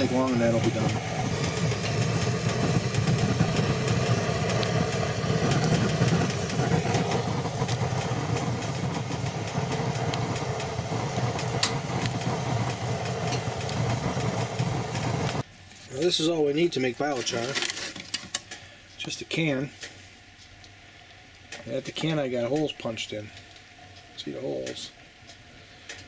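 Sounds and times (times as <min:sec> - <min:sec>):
logs crackling: 0:00.0 - 0:19.1
flames roaring in wood stove: 0:00.0 - 0:26.0.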